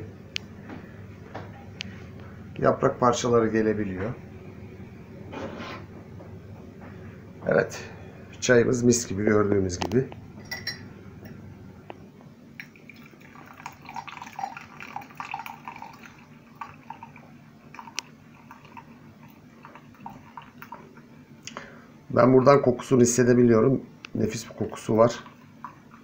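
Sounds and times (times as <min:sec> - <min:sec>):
light clinks: 0:10.4 - 0:11.4
tea trickling into glass: 0:12.6 - 0:20.8.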